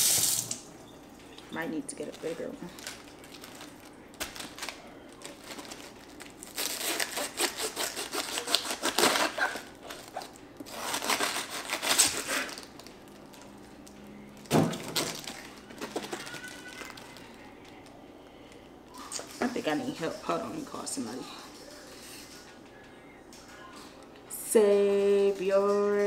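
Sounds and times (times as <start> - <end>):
knife cutting crunchy cabbage: 6.4 - 12.8.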